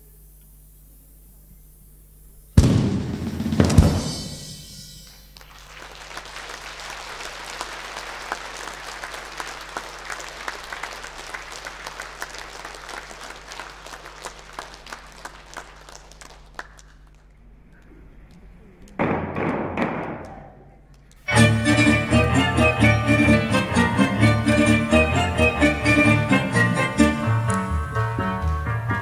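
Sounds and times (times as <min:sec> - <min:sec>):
audience applauding: 0:05.2 - 0:17.9.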